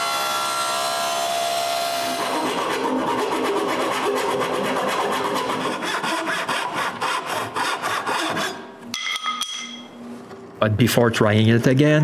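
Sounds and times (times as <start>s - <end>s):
hand saw cutting wood: 0.0s - 8.7s.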